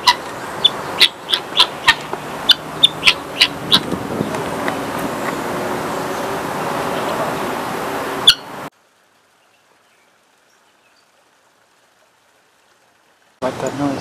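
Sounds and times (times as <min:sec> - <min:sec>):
guineafowl calling: 0:00.0 - 0:04.4, 0:08.2 - 0:08.6.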